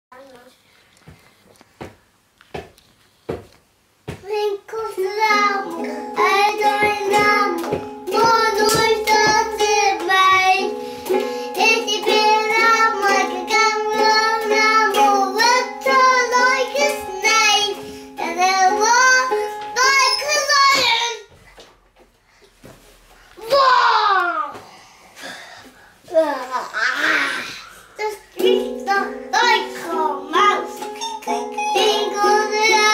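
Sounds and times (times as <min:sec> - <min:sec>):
young child singing: 0:04.1 - 0:21.3, 0:26.1 - 0:32.9
held accompaniment notes: 0:05.1 - 0:20.4, 0:28.4 - 0:32.9.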